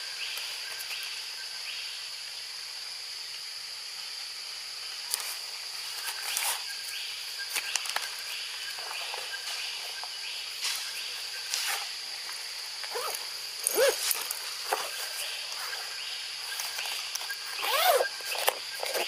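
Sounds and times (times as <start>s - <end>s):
insects buzzing: 0.0s - 19.0s
clicks and rustles in branches: 5.1s - 6.8s, 7.4s - 19.0s.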